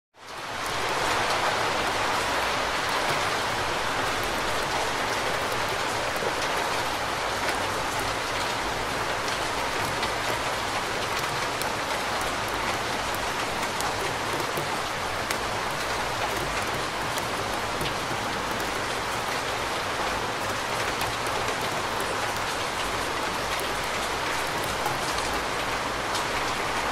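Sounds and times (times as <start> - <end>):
raindrop taps: 9.2 - 25.4.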